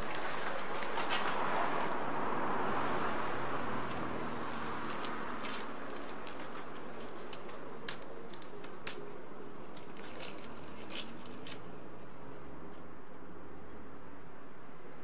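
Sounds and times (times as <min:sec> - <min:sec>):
equipment and cables clicking: 0:03.8 - 0:11.7.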